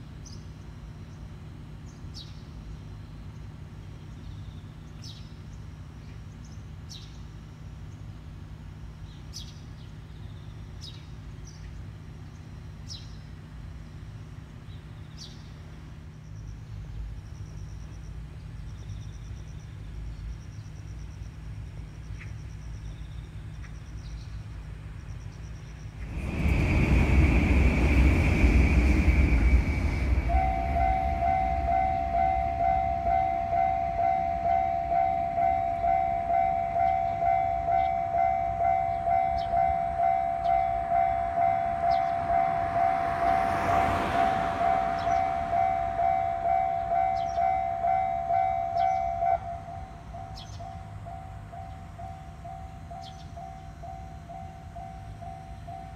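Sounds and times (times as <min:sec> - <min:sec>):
level crossing warning bell: 0:25.5 - 0:55.9
passing train whoosh: 0:25.7 - 0:55.9
loud rushing noise: 0:26.0 - 0:33.3, 0:40.7 - 0:47.2.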